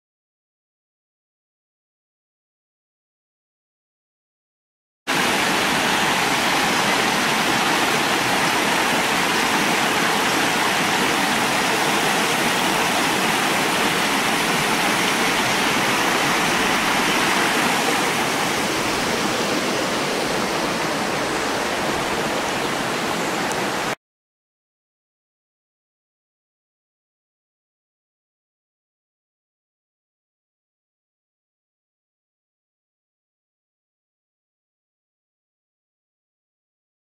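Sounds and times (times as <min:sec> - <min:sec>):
creek water rushing over rocks: 0:05.1 - 0:24.0.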